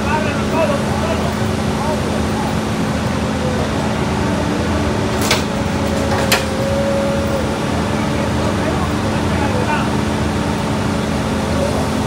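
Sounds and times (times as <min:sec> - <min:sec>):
diesel machinery droning: 0:00.0 - 0:12.0.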